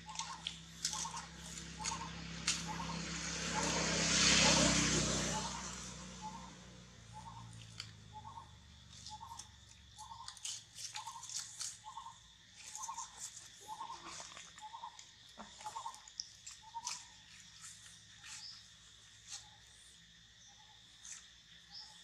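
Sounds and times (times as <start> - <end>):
small animal chirping: 0.0 - 3.8, 7.1 - 18.6.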